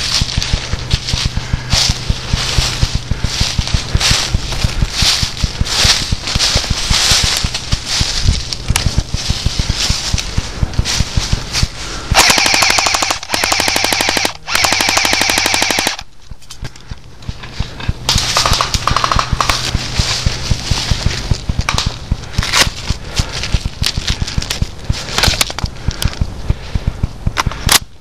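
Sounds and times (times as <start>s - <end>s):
footsteps through dry leaves: 0.0s - 12.8s, 16.8s - 26.7s
airsoft gun firing bursts: 8.8s - 16.1s, 18.1s - 27.9s.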